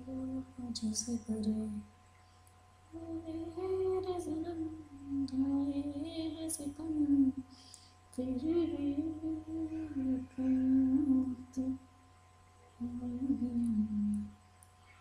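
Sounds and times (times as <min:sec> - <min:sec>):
low electrical hum: 0:00.0 - 0:15.0
woman humming a tune: 0:03.0 - 0:07.4, 0:08.2 - 0:11.8, 0:12.8 - 0:14.3.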